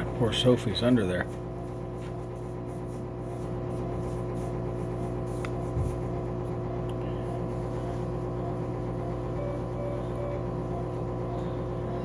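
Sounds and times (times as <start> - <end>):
electrical hum of equipment: 0.0 - 12.0
short electronic beep: 8.4 - 12.0.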